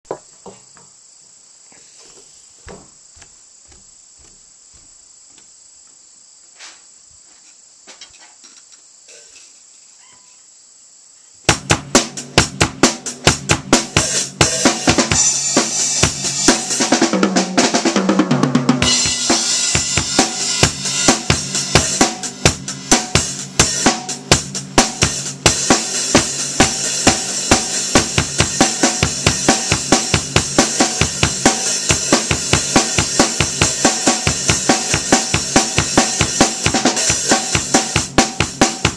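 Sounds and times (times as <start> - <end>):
drum kit beat: 11.5 - 38.9.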